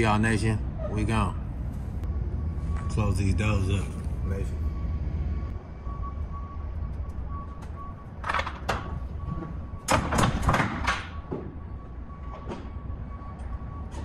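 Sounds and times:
metal door clanking and rattling: 8.2s - 11.6s.

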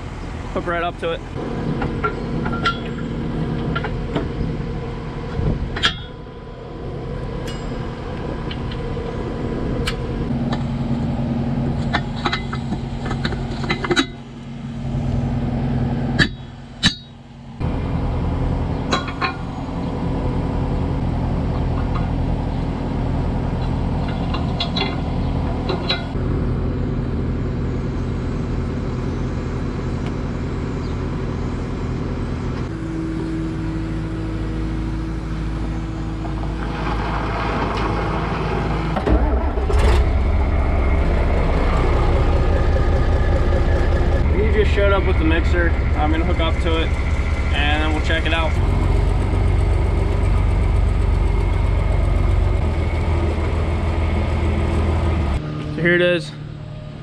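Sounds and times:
engine idling: 0.0s - 57.0s.

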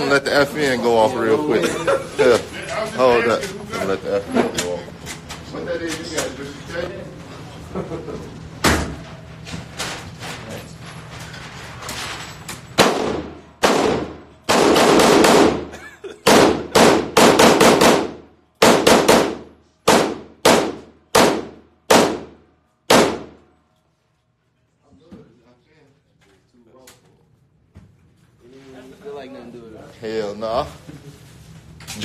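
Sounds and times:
pistol shots ringing indoors: 12.5s - 23.7s.

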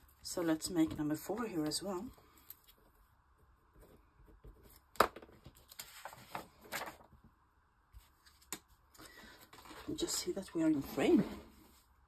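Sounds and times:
paper pages rustling: 4.4s - 7.2s, 7.9s - 10.0s.

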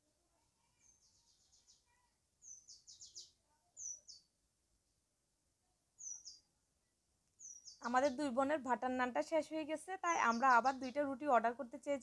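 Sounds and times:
small bird chirping: 0.6s - 4.4s, 6.0s - 6.6s, 7.3s - 8.6s, 10.0s - 11.2s.

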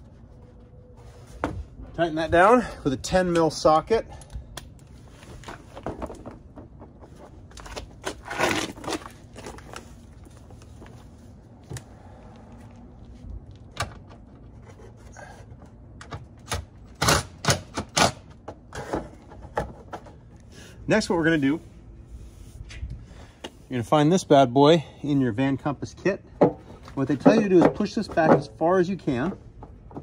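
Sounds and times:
knocks and scrapes of handling: 0.0s - 2.1s, 4.8s - 11.9s, 12.5s - 16.4s, 18.3s - 23.8s, 26.4s - 30.0s.

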